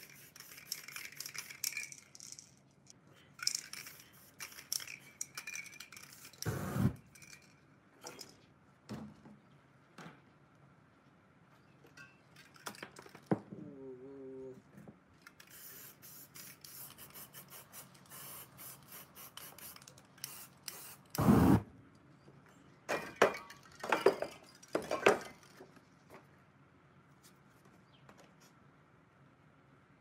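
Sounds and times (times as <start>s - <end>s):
spray paint can hissing: 0.0s - 2.4s, 3.4s - 5.1s, 6.0s - 7.0s, 15.4s - 21.6s.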